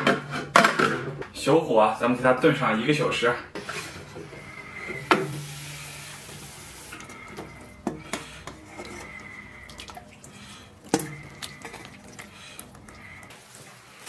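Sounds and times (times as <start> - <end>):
broth sloshing and dripping: 4.0 - 14.0.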